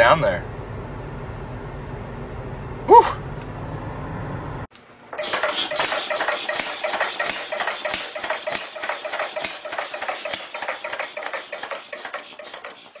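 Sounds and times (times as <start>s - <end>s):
rapid mechanical clicking clatter: 5.2s - 13.0s.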